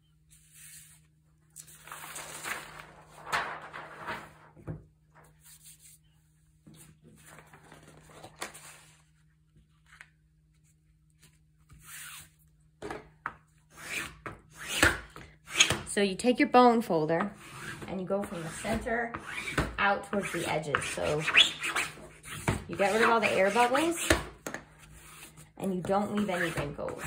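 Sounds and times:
paper rustling and rubbing: 0:00.3 - 0:04.6, 0:05.2 - 0:06.2, 0:06.8 - 0:12.4.

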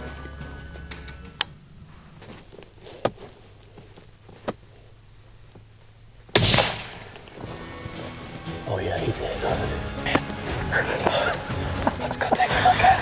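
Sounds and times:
rifle shot: 0:06.3 - 0:07.4.

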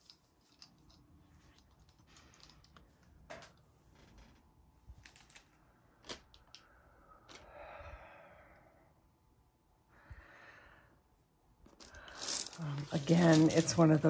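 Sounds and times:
soft breath-like rush: 0:06.6 - 0:11.3.

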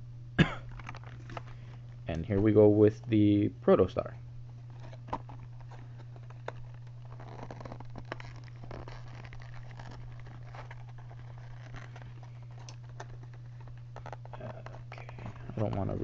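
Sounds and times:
steady low electrical hum: 0:00.0 - 0:16.0
cardboard box rustling and clicking: 0:00.7 - 0:01.6, 0:04.5 - 0:16.0.

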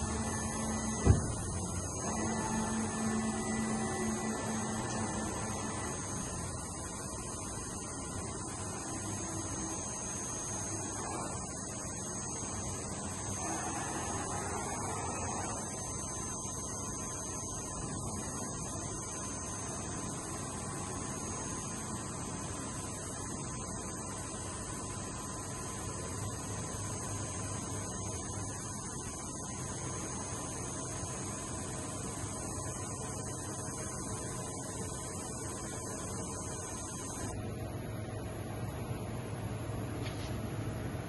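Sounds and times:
electrical hum: 0:00.0 - 0:41.0
faint high whines: 0:00.0 - 0:41.0.

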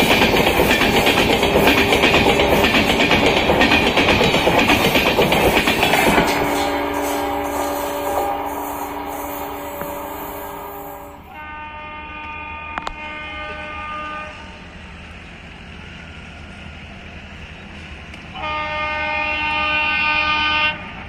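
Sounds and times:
locomotive horn blasts: 0:06.3 - 0:14.6, 0:18.4 - 0:20.9.

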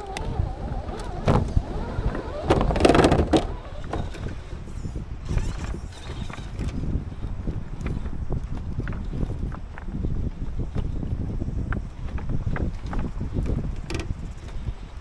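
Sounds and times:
beach pebbles crunching: 0:05.3 - 0:14.9.

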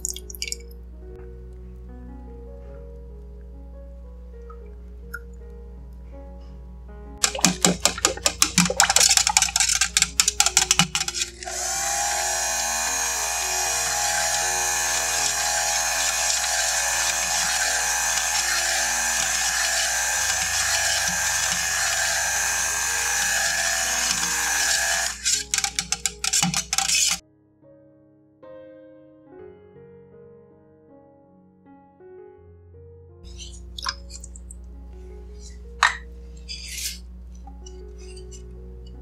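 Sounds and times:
soft background music: 0:00.0 - 0:26.3, 0:27.7 - 0:39.0
stick blender knocking in metal pot: 0:07.2 - 0:12.3, 0:13.0 - 0:27.2
stick blender whirring: 0:07.2 - 0:27.2.

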